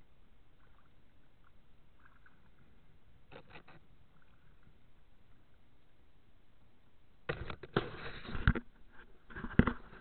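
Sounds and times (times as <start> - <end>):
low steady rumble: 0.0 - 7.3
paddle drips and splashes: 0.4 - 3.0.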